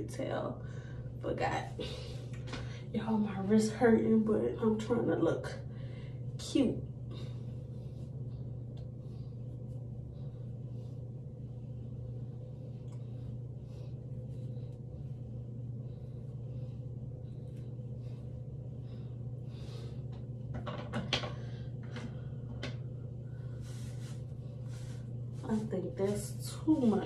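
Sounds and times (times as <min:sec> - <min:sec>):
steady low hum: 0:00.0 - 0:27.0
hair brushing strokes: 0:23.4 - 0:27.0.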